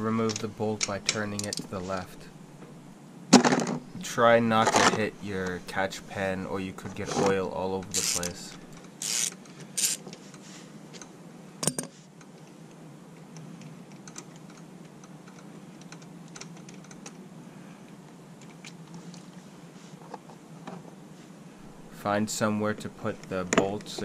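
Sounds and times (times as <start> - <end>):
ratchet wrench clicking: 8.0 - 8.4, 9.0 - 10.0.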